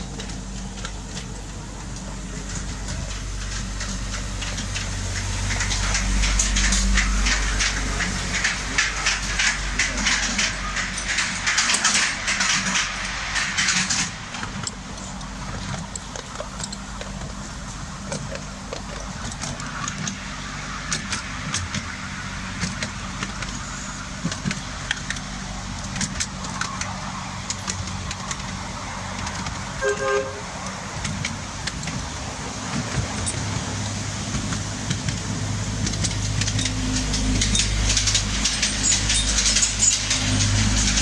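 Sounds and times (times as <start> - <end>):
locomotive engine hum: 0.0 - 41.0
wheels clicking on rails: 0.0 - 41.0
locomotive horn toot: 29.8 - 30.6.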